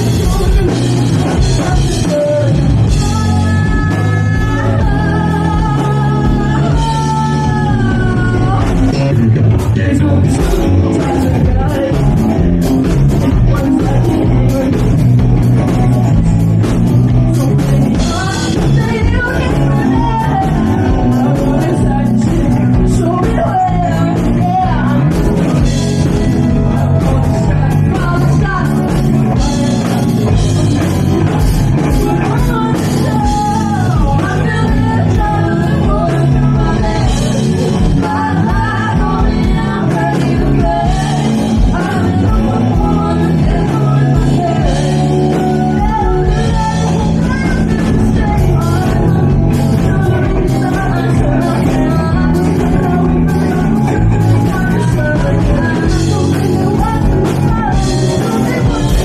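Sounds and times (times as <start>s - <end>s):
women singing: 0.0s - 16.2s, 17.2s - 59.0s
drum kit: 0.0s - 59.0s
electric bass: 0.0s - 59.0s
electric guitar: 0.0s - 59.0s.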